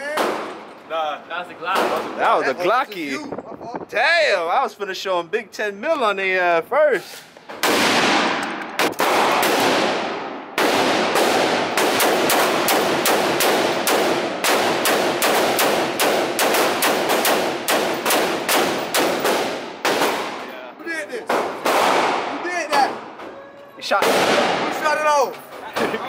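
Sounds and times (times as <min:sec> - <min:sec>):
gunshots ringing indoors: 0:07.6 - 0:20.6, 0:21.3 - 0:23.2, 0:24.0 - 0:24.8.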